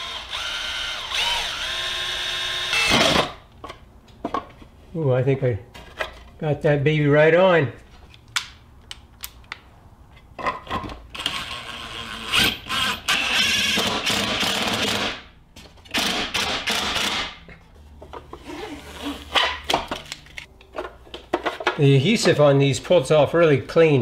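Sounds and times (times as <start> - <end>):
cordless drill boring plastic: 0.0 - 3.3.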